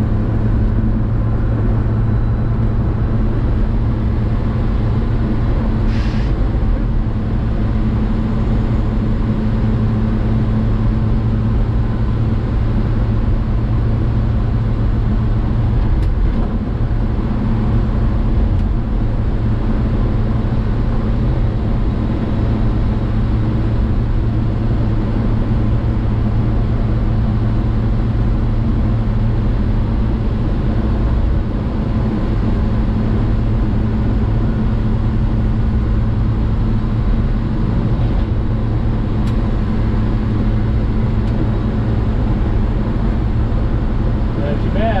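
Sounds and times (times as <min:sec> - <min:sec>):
pickup engine running: 0:00.0 - 0:45.0
road noise: 0:00.0 - 0:45.0.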